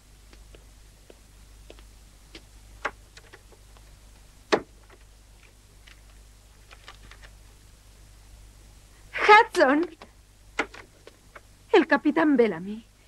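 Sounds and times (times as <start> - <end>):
paper crackling envelope opened: 5.8 - 7.3.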